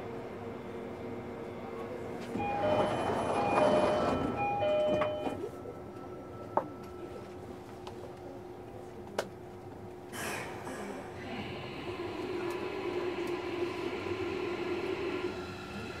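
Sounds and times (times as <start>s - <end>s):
train running noise: 0.0s - 8.3s, 9.0s - 16.0s
electric train motor tones: 2.3s - 5.4s.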